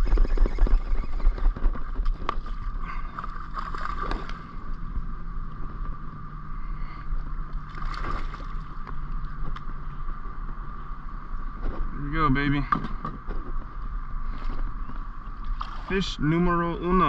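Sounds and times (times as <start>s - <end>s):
low rumble: 0.0s - 17.0s
fish splashing at water surface: 7.7s - 8.8s.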